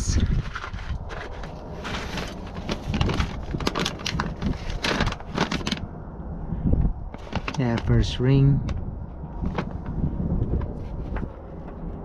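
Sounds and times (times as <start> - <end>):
paper and plastic bag crinkling: 0.2 - 5.9, 7.1 - 7.9.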